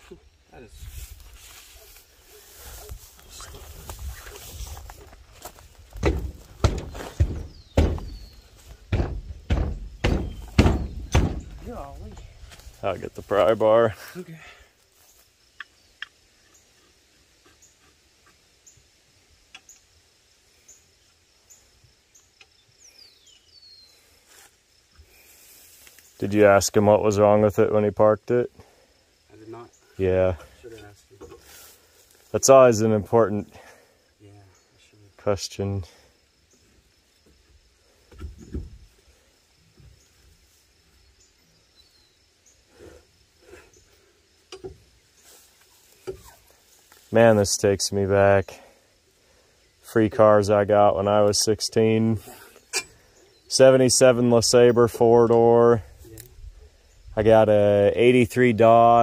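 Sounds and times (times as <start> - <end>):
insect chirping: 0.0 - 59.0
lug wrench and wheel clunks: 52.7 - 53.0.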